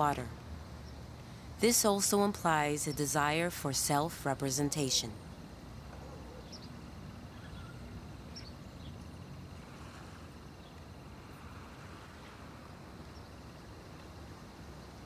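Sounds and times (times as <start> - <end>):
distant traffic rumble: 0.0 - 15.0
faint bird chirps: 6.2 - 9.0.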